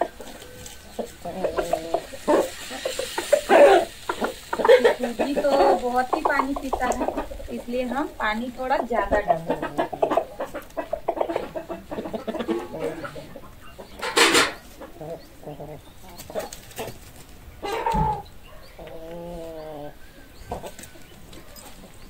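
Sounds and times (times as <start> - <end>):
chickens clucking: 0.0 - 22.0.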